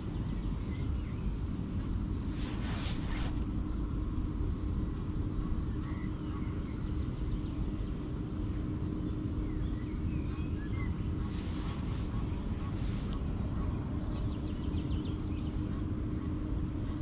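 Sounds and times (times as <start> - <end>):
rustle: 2.2 - 3.5, 11.2 - 13.2.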